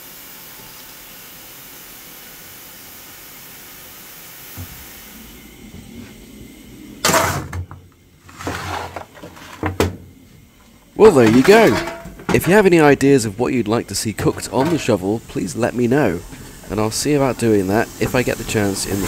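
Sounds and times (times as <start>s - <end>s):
steady hiss: 0.0s - 19.0s
shovel scraping steel floor: 8.2s - 9.8s.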